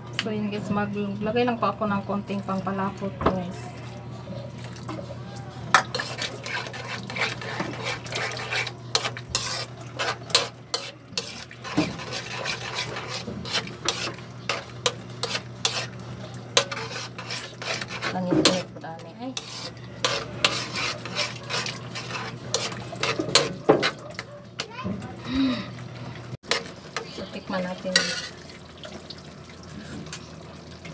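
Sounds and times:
spoon scraping and clinking in a wok: 5.8 - 15.9, 16.6 - 18.7, 19.3 - 24.3, 27.9 - 28.4.

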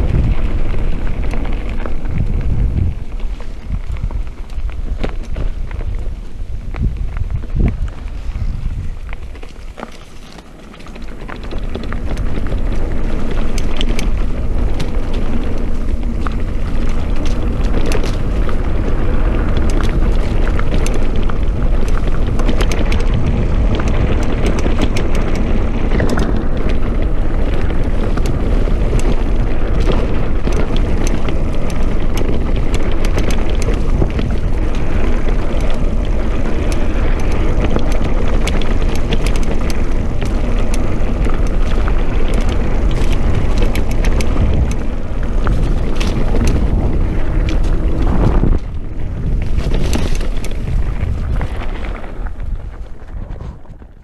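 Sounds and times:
bike rattling and clicking: 0.0 - 54.0
tyres rumbling on dirt: 0.0 - 54.0
wind buffeting microphone: 0.0 - 54.0.

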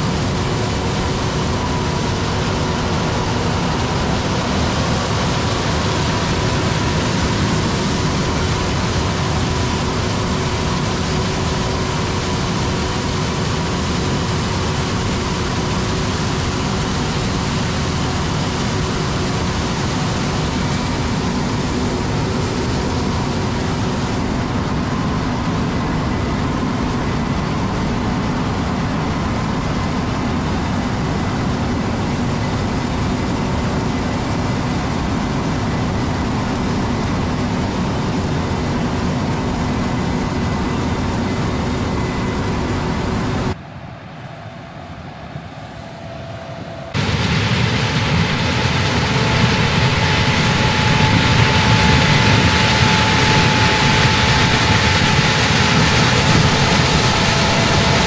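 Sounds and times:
harvest machinery running: 0.0 - 24.9, 47.0 - 58.0.

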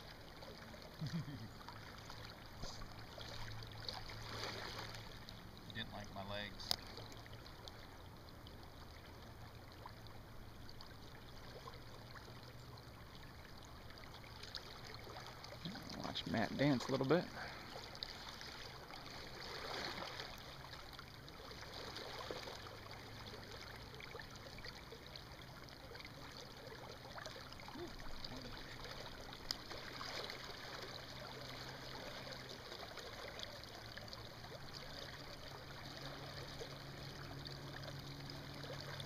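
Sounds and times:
faint low hum: 0.1 - 39.0
river water rushing: 1.6 - 6.0, 14.3 - 39.0.

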